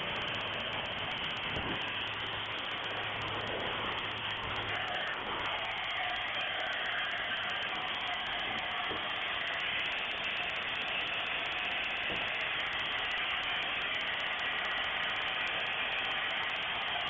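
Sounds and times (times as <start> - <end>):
factory machinery hiss and hum: 0.0 - 17.0.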